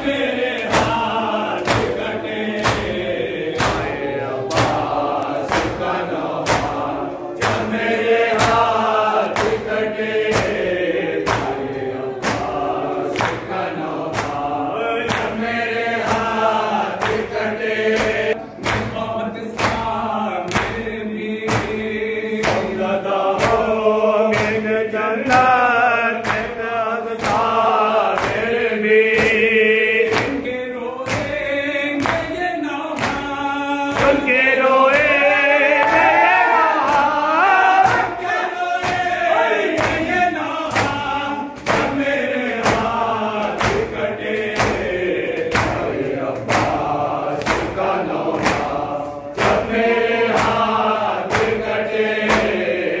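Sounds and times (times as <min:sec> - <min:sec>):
men singing a lament: 0:00.0 - 0:53.0.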